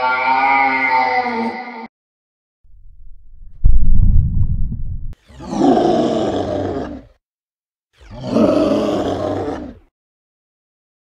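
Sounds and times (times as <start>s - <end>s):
low rumble: 2.7s - 5.2s
dinosaur roars: 5.2s - 7.2s, 8.0s - 9.9s.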